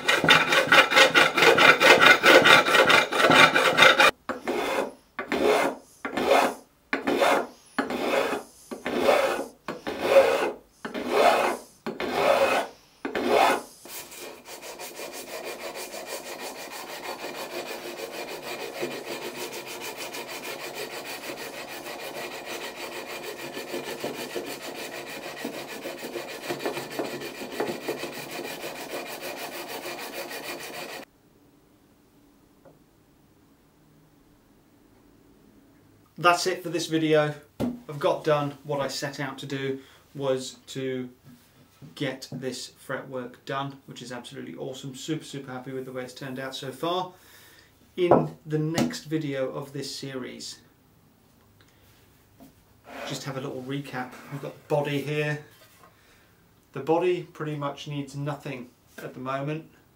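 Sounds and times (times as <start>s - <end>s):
file strokes on metal: 0.0s - 31.1s, 52.8s - 55.9s
steady rubbing: 0.0s - 31.1s.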